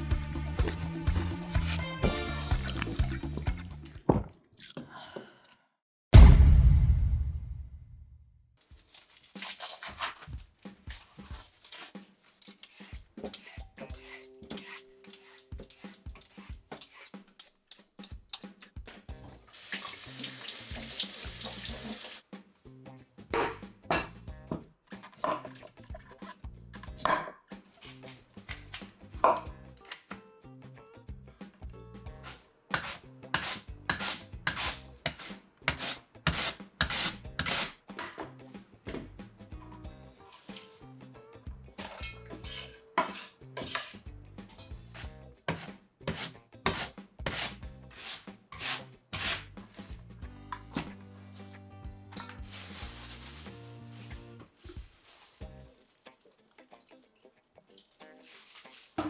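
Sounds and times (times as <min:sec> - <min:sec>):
peeler scraping radish skin: 0:08.9 - 0:18.5, 0:32.2 - 0:37.8, 0:44.9 - 0:49.5.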